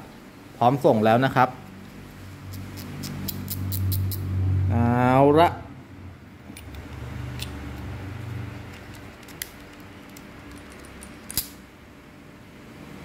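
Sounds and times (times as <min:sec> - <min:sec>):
metallic ticks and clicks: 0:02.5 - 0:04.2.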